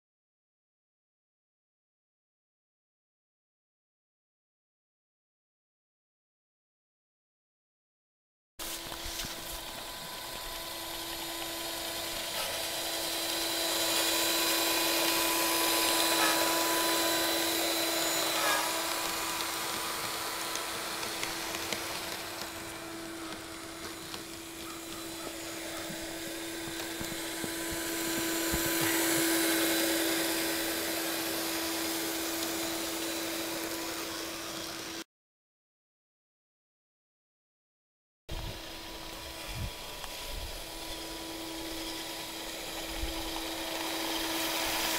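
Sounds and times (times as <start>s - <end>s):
small motor whining: 8.6s - 35.0s, 38.3s - 44.9s.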